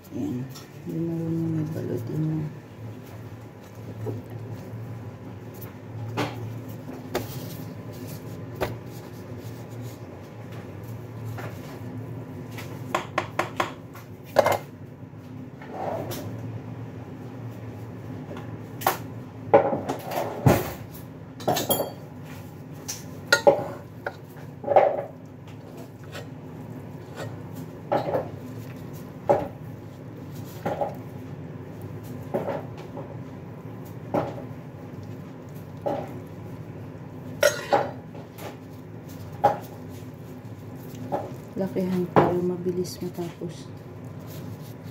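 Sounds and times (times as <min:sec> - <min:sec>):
dishes and cutlery clinking: 0:21.4 - 0:22.1, 0:23.3 - 0:25.1, 0:37.4 - 0:38.0.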